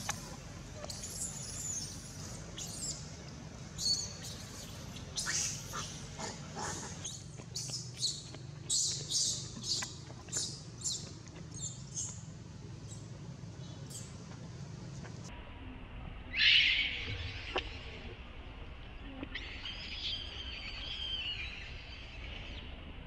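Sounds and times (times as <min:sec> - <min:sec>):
baby monkey squealing: 0:00.0 - 0:03.0, 0:03.8 - 0:11.0.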